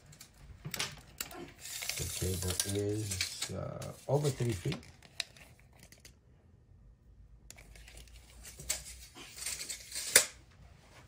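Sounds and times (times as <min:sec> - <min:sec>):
packaging rustling and crinkling: 0:01.6 - 0:06.1.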